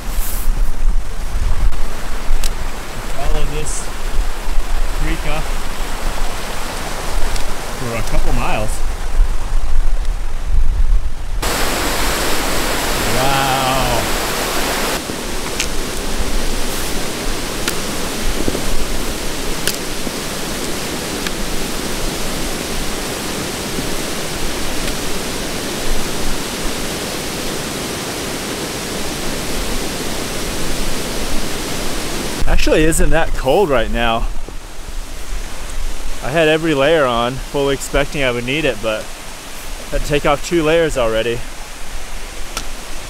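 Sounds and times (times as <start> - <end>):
brook cascading over rocks: 0.0 - 10.4, 11.4 - 43.0.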